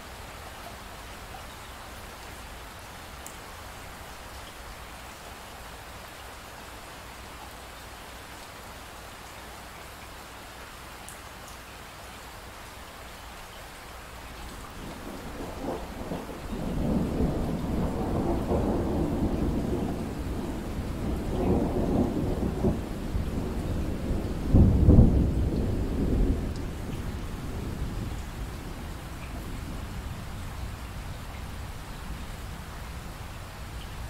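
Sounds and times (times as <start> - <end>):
steady rain: 0.0 - 34.0
rolling thunder: 14.6 - 33.1.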